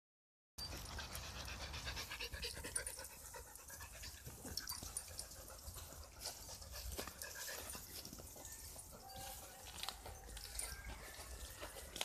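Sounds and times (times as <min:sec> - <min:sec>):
dog panting: 0:00.6 - 0:09.6.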